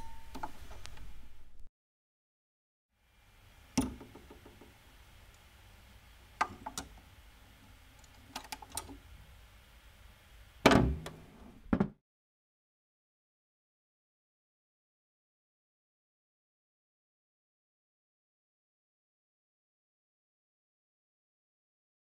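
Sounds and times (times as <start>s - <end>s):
faint hiss: 3.0s - 11.7s.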